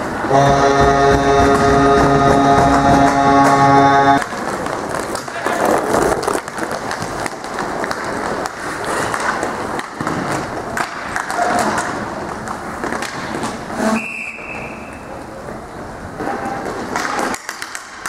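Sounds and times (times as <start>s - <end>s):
players calling out: 0.3s - 4.2s
sticks clacking on puck: 4.2s - 14.0s, 16.6s - 18.0s
skate wheels rolling and scraping: 4.2s - 18.0s
whistle blast: 14.0s - 14.9s.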